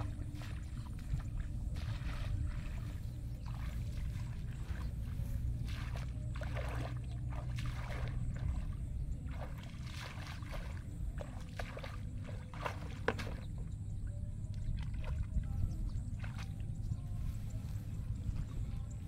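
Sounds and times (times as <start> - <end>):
footsteps splashing in shallow water: 0.0 - 19.0
low steady rumble: 0.0 - 19.0.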